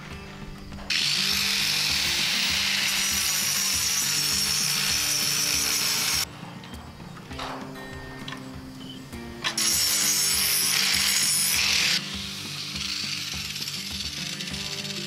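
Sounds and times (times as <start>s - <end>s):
angle grinder cutting wire mesh: 0.7s - 6.3s, 9.4s - 15.0s.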